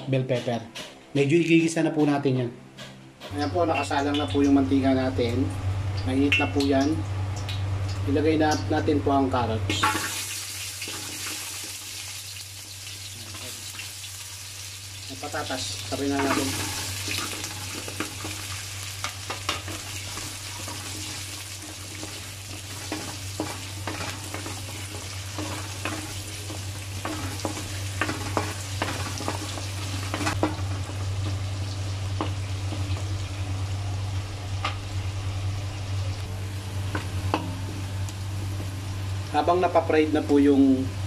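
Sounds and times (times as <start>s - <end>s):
vegetables sizzling in oil: 9.7s - 41.0s.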